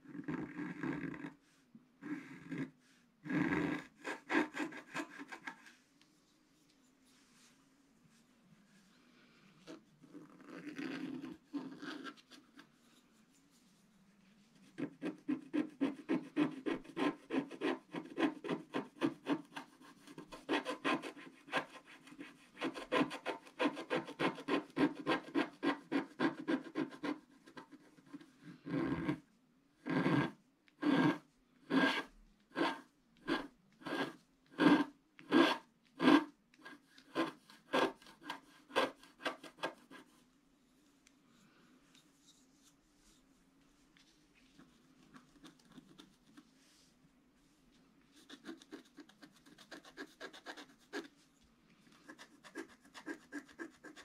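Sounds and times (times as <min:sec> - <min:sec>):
stylus scratching paper: 0:00.1 - 0:01.4, 0:02.0 - 0:05.8, 0:10.1 - 0:12.6, 0:14.5 - 0:29.2, 0:29.8 - 0:40.2, 0:48.1 - 0:51.2, 0:51.9 - 0:54.0.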